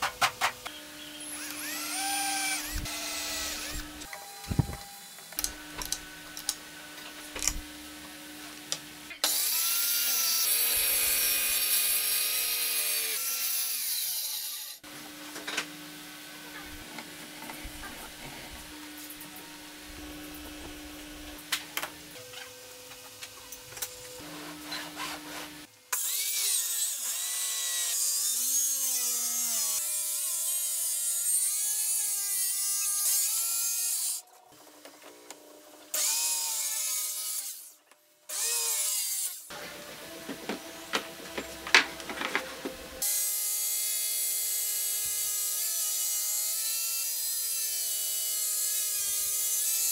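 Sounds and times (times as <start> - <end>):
circular saw cutting wood: 0.7 - 14.9, 24.0 - 34.3, 35.9 - 49.9.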